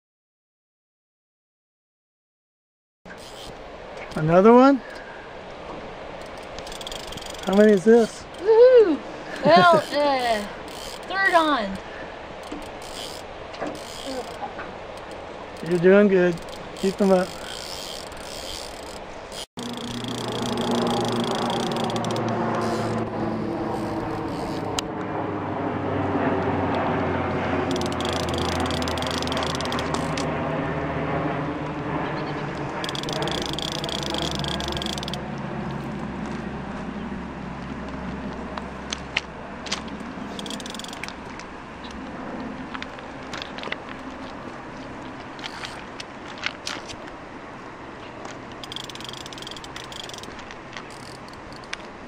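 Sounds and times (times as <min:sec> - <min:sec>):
fishing reel drag buzzing: 0:03.1 - 0:05.1, 0:06.1 - 0:08.6, 0:09.6 - 0:24.9, 0:27.7 - 0:30.3, 0:32.8 - 0:35.2, 0:40.3 - 0:41.1, 0:48.6 - 0:51.8
river water rushing: 0:03.1 - 0:24.8
sharp clicks: 0:27.7 - 0:30.3.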